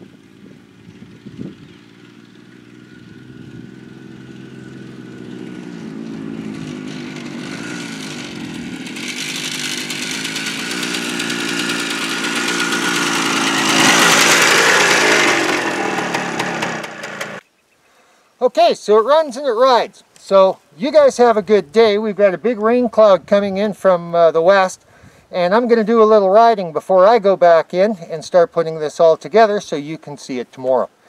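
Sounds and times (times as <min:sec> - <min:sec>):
dirt bike passing by: 0:00.0 - 0:17.4.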